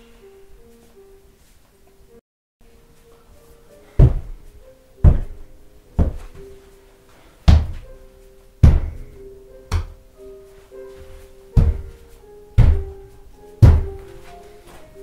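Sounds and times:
background music with held notes: 0.0 - 15.0
fist pounding on a wall: 4.0 - 4.4, 5.0 - 5.4, 6.0 - 6.3, 7.5 - 7.8, 8.6 - 9.1, 11.6 - 12.0, 12.6 - 13.0, 13.6 - 14.0.

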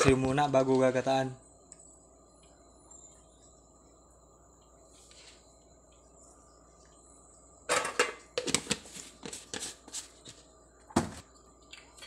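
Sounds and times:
kitchen items clattering on countertop: 7.7 - 10.0.

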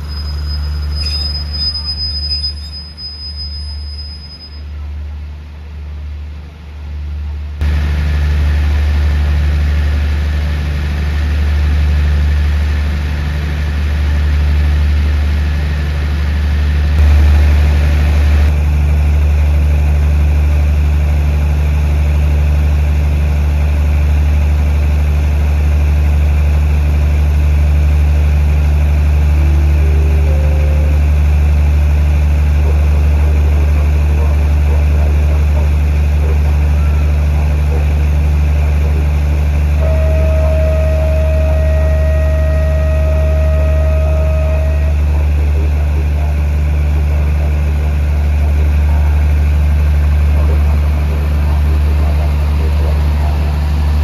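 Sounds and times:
train diesel engines idling: 0.0 - 54.0.

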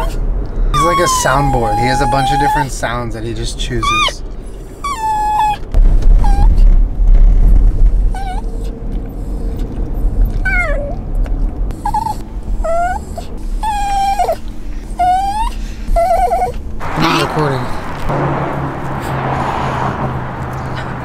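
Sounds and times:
dog whining: 0.0 - 2.8, 3.7 - 6.7, 8.1 - 11.0, 11.7 - 17.3
low car rumble: 0.0 - 21.0.

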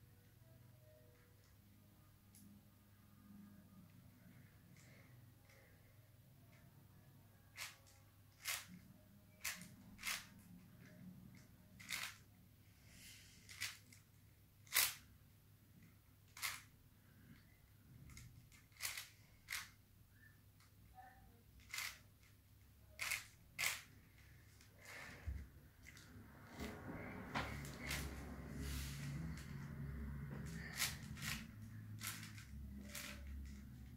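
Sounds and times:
puzzle cube layers clacking: 11.7 - 12.3, 14.6 - 15.0, 18.1 - 19.7, 21.6 - 22.2, 23.0 - 23.9, 30.4 - 33.9.

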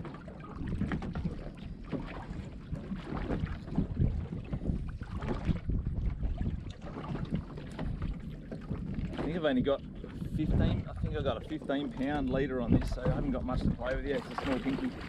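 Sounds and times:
water slapping against boat hull: 0.0 - 15.0
wind buffeting microphone: 0.0 - 15.0.

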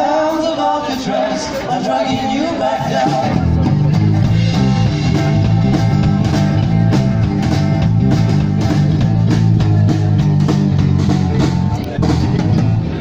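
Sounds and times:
electric and acoustic guitars: 0.0 - 13.0
bass line: 1.6 - 13.0
drum kit beat: 2.8 - 13.0.

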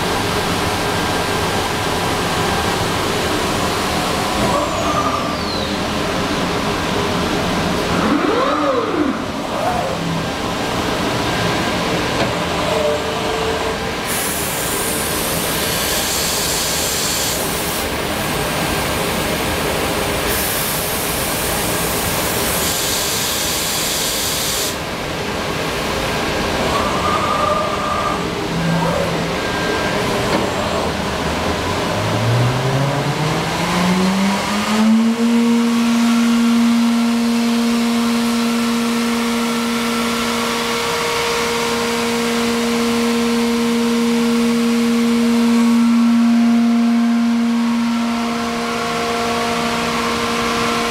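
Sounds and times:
cnc machine running: 0.0 - 24.8, 28.2 - 50.9
motor whine rising in pitch: 32.0 - 50.9.

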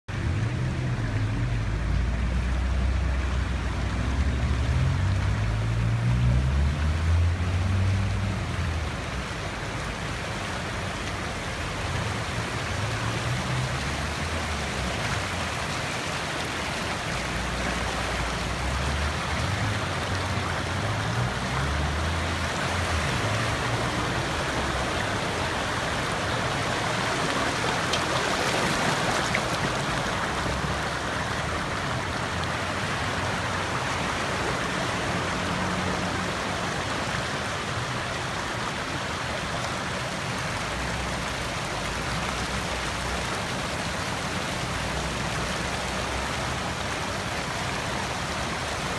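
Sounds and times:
floodwater rushing over pavement: 0.1 - 48.9.

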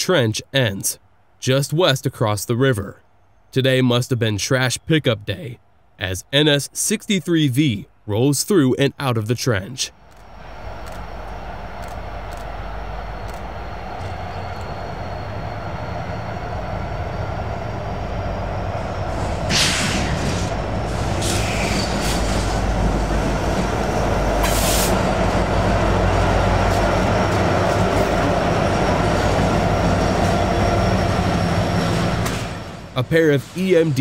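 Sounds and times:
diesel locomotive engine rumble: 8.8 - 34.0
train wheels on rail: 10.0 - 34.0
short hissing bursts: 24.4 - 25.0.

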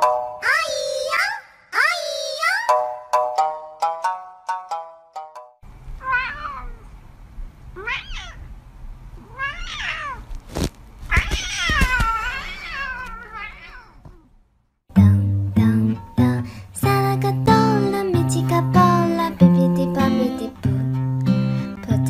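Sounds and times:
cat meowing: 6.0 - 6.9, 7.8 - 8.5, 9.2 - 10.3, 11.1 - 14.3.

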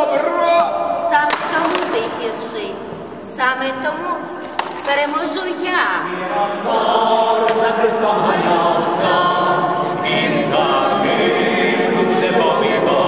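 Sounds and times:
choir singing a cappella: 5.6 - 13.0.

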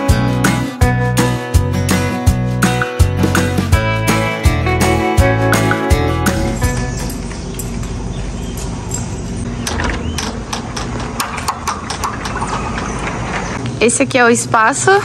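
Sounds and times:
glass door clicks and knocks: 9.6 - 12.4.

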